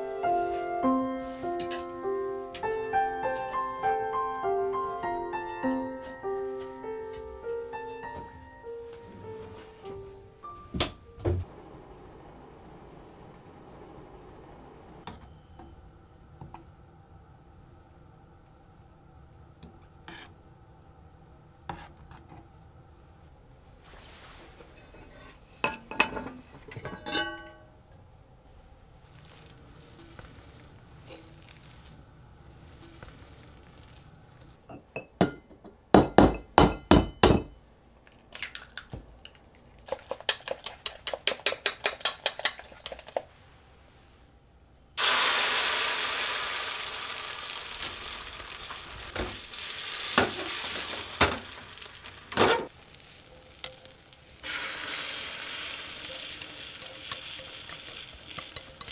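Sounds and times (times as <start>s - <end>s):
egg sizzling in hot pan: 29.0s - 34.6s, 45.0s - 58.9s
whisking eggs in metal bowl: 39.8s - 43.2s, 56.1s - 58.9s.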